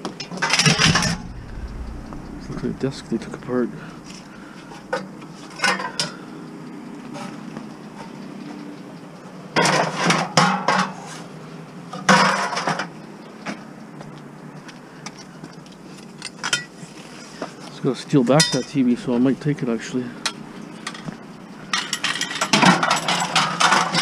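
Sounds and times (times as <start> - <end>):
steady low hum: 0.7 - 6.9.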